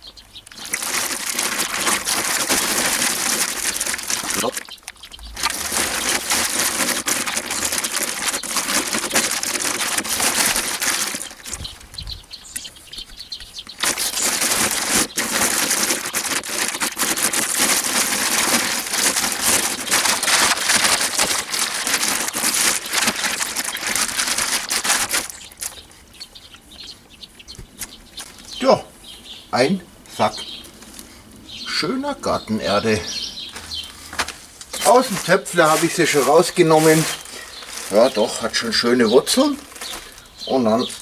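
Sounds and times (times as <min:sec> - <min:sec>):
soil spilling out: 0:00.5 - 0:11.7, 0:13.8 - 0:25.8, 0:33.9 - 0:41.0
plastic sack rustling and crinkling: 0:00.5 - 0:26.3, 0:32.8 - 0:41.0.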